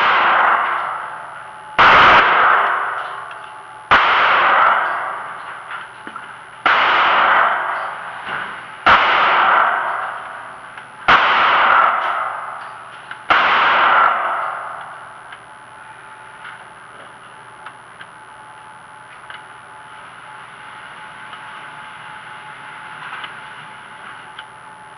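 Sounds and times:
gunshots echoing indoors: 0.0 - 16.9.

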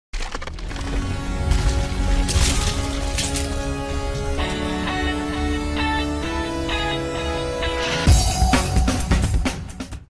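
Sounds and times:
crashing crumbling stone: 0.1 - 4.6.

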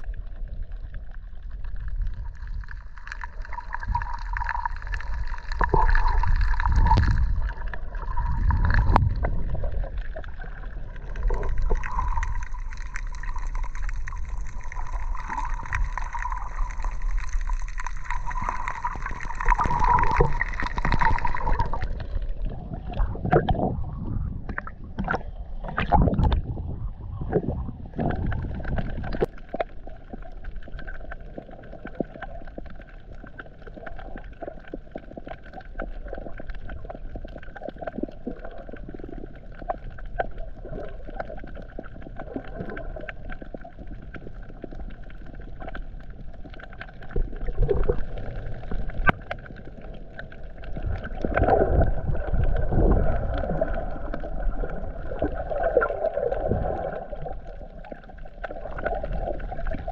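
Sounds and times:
underwater clicks and crackles: 0.0 - 59.9
muffled underwater hiss: 2.3 - 29.6
water sloshing: 2.7 - 26.5.

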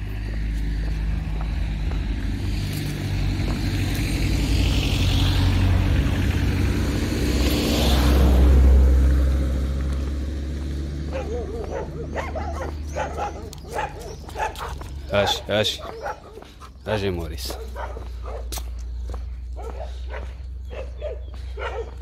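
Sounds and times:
footsteps through dry reeds: 0.0 - 5.1
dogs barking: 10.5 - 22.0.

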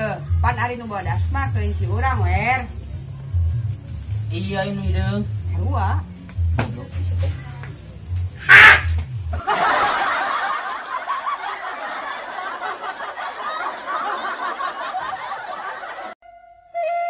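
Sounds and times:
laugh track: 8.5 - 16.2.

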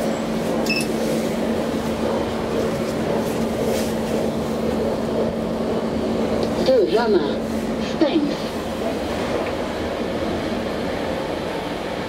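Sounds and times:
elevator car rumbling: 0.0 - 12.0.

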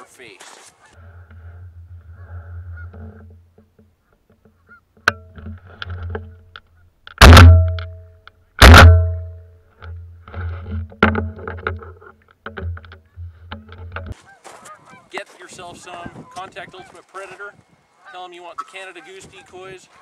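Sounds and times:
shotgun shots: 7.2 - 7.8, 8.6 - 9.3.

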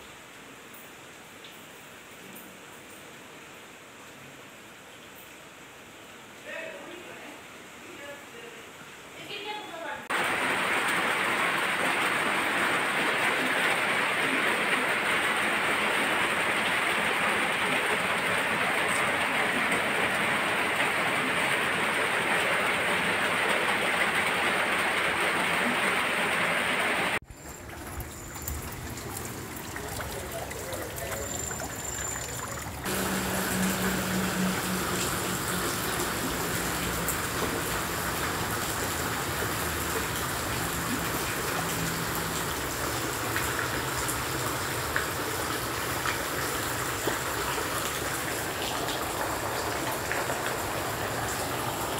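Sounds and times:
flowing water: 8.8 - 51.9
heavy rain: 10.0 - 51.9.

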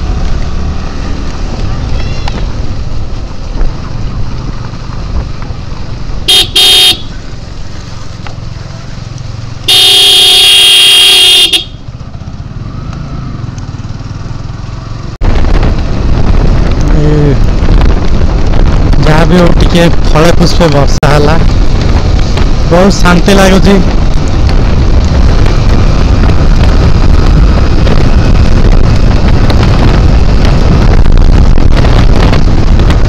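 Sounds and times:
wind rush: 0.0 - 9.7, 11.8 - 33.0
motorcycle engine: 0.0 - 20.4, 21.1 - 33.0
motorcycle horn honking: 6.3 - 7.1, 9.7 - 11.8.

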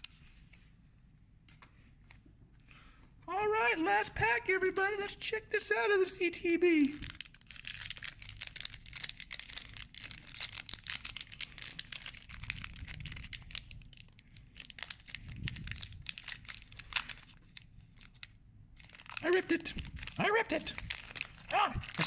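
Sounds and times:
foil wrapper crinkling and tearing: 6.8 - 22.0.

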